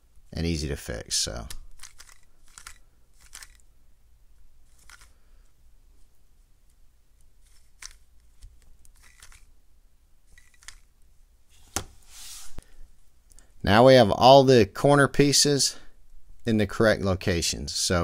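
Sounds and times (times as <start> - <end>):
puzzle cube plastic clicks and swishes: 1.3 - 3.7, 4.6 - 5.2, 6.7 - 9.5, 10.3 - 11.0.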